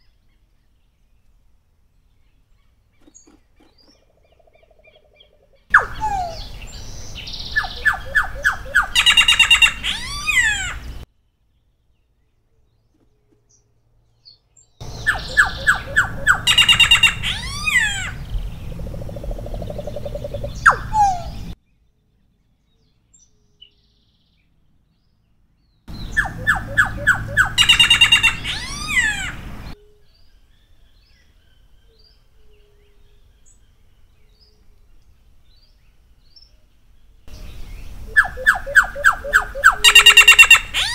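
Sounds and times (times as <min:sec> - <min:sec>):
bird singing whistles: 0:05.7 - 0:10.6, 0:14.8 - 0:18.1, 0:20.0 - 0:21.6, 0:26.0 - 0:29.8, 0:37.4 - 0:40.9.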